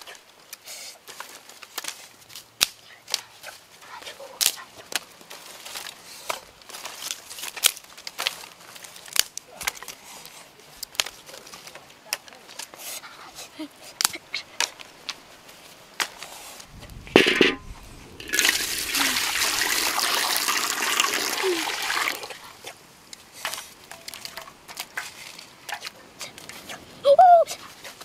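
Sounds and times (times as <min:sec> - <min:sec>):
water pouring into metal wok: 0:18.2 - 0:22.3.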